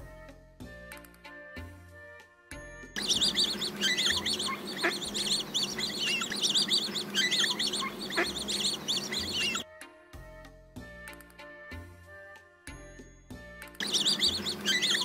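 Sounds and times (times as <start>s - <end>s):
ducks calling: 3.0s - 9.6s, 13.8s - 15.0s.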